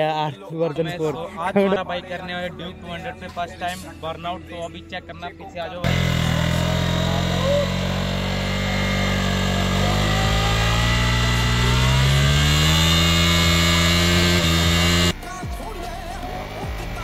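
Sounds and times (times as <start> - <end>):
motorcycle engine revving hard: 5.8 - 15.3, 16.1 - 17.0.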